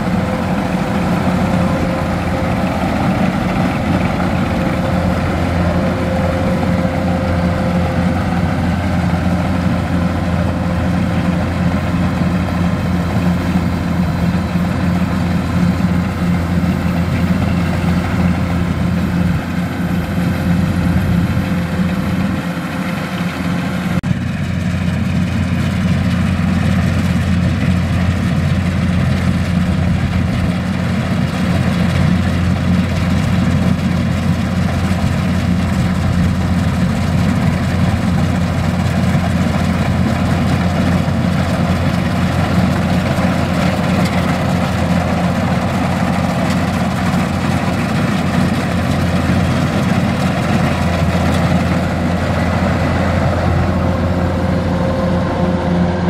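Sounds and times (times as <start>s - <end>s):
combine harvester engine drone: 0.0s - 56.0s.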